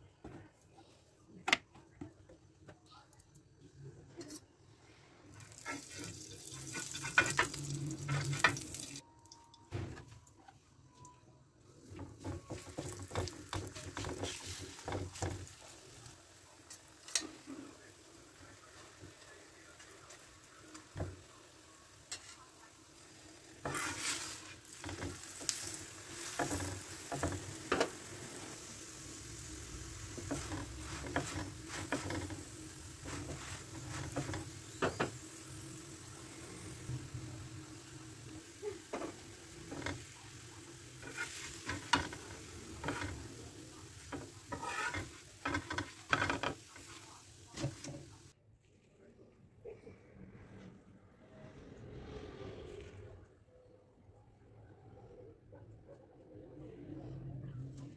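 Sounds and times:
oil sizzling on griddle: 5.3s - 9.0s, 12.2s - 48.3s
metal spatula scraping griddle: 5.6s - 8.6s, 23.6s - 28.6s, 29.6s - 35.1s, 40.9s - 47.0s.

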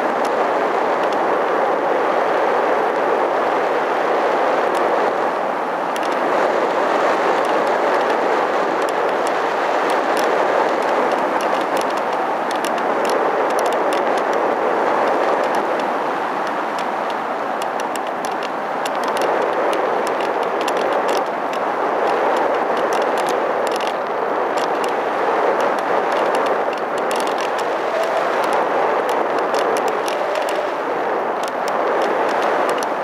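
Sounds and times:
light crackling ticks: 1.0s - 1.2s, 5.9s - 6.2s, 8.8s - 14.4s, 15.0s - 30.8s, 31.4s - 33.0s
airflow rushing: 23.4s - 33.0s.

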